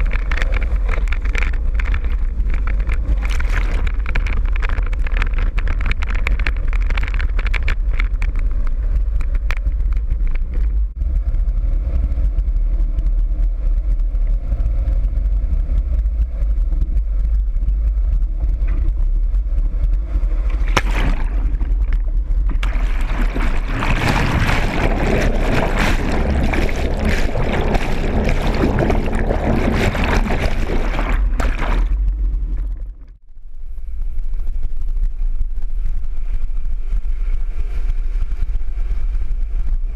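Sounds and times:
water rushing and splashing: 0.0s - 5.2s, 20.4s - 33.1s
vehicle engine rumble: 0.0s - 39.9s.

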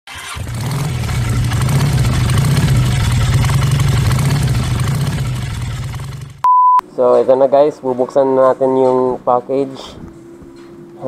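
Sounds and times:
engine idling: 0.1s - 6.4s.

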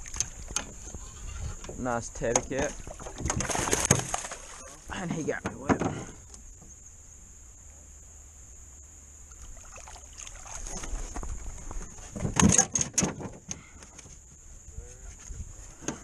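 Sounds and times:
high insect drone: 0.0s - 16.0s.

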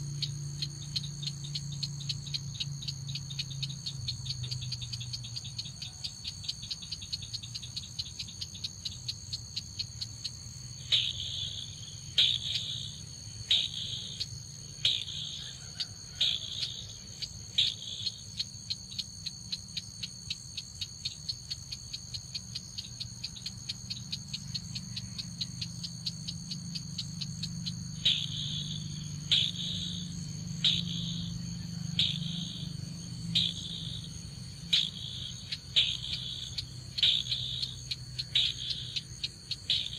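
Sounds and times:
high insect drone: 0.0s - 39.9s
crake calls: 10.8s - 18.5s, 23.7s - 39.9s.

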